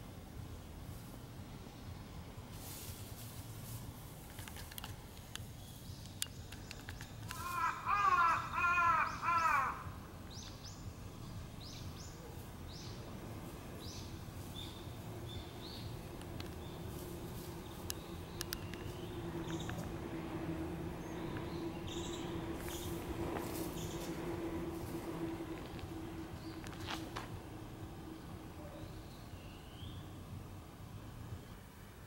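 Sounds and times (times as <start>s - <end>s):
outdoor background noise: 0.0s - 32.0s
small birds chirping: 5.3s - 31.6s
crow cawing: 7.3s - 10.0s.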